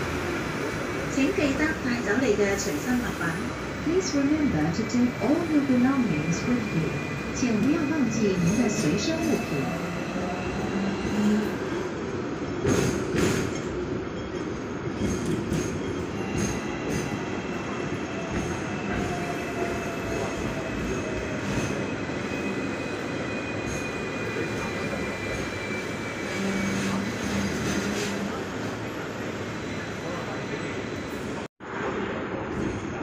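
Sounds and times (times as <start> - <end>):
tram wheels rumbling on rails: 0.0 - 33.0
high wheel squeal: 18.5 - 31.3.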